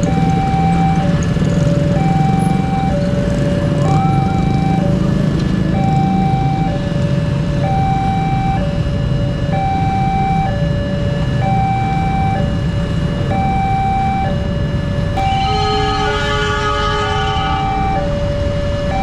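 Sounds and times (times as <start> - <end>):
motorcycle engines idling: 0.0 - 8.0
two-tone level crossing alarm: 0.0 - 19.0.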